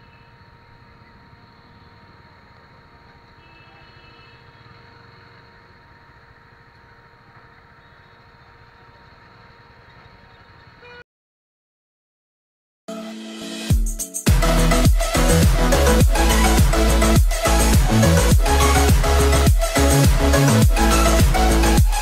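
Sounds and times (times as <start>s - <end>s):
faint steady whine: 0.0s - 10.8s.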